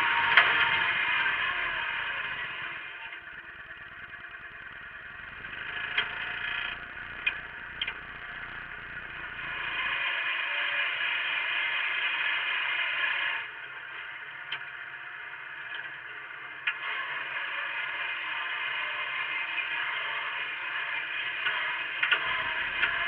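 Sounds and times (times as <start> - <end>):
plough clanking: 0.0 - 9.9
tractor engine running under load: 0.0 - 10.2, 13.4 - 23.0.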